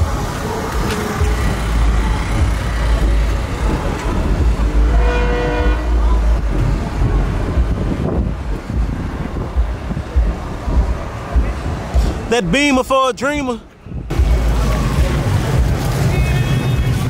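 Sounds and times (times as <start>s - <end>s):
low rumble: 1.2s - 12.3s
car horn toot: 4.7s - 6.3s, 16.1s - 17.0s.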